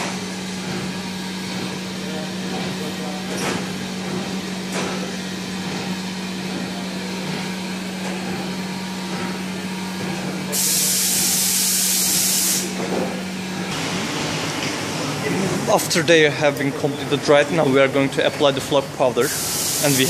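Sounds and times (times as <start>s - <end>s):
loud high hiss: 19.2s - 20.0s.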